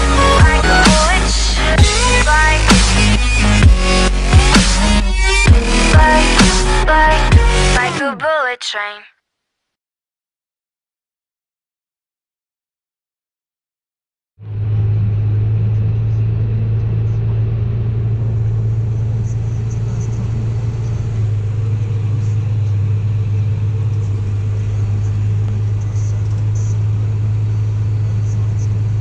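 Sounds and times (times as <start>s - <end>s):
tractor engine drone: 0.0s - 8.1s, 14.4s - 29.0s.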